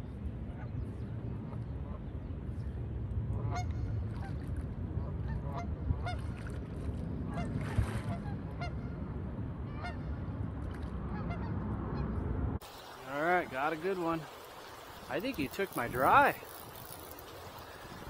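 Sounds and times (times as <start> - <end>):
steady low rumble: 0.0 - 12.6.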